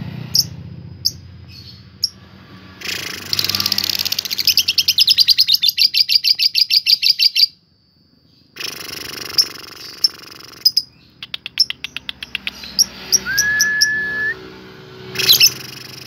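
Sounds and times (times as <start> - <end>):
lovebird chirping: 0.3 - 2.2, 2.8 - 7.6, 8.3 - 14.4, 15.1 - 16.0
fast bird chatter: 2.8 - 7.5, 8.6 - 13.4, 15.2 - 16.0.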